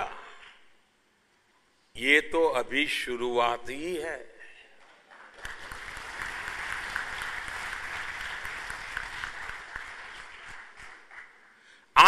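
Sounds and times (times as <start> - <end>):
audience applause: 5.1 - 11.8.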